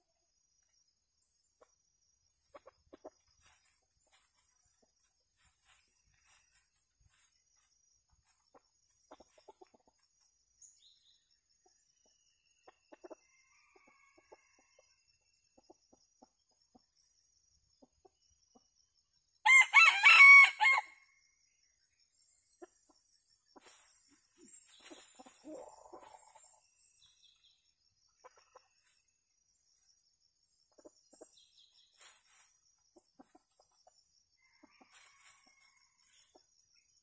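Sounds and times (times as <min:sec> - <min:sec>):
chickens scratching in dry leaves: 0:03.4 - 0:08.5, 0:23.6 - 0:26.6, 0:31.9 - 0:33.4, 0:34.8 - 0:36.3
rooster crowing: 0:19.4 - 0:21.0.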